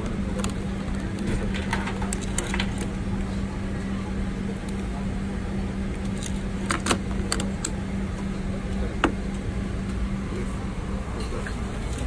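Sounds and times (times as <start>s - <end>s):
airliner cabin rumble and hum: 0.0s - 12.0s.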